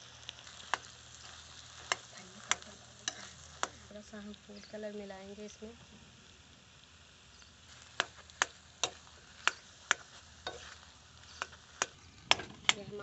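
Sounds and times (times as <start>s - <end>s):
faint frying hiss: 0.0s - 13.0s
spoon stirring mashed potato: 0.5s - 3.9s, 7.7s - 12.0s
spoon clacking against pan: 0.6s - 3.9s, 8.0s - 12.5s.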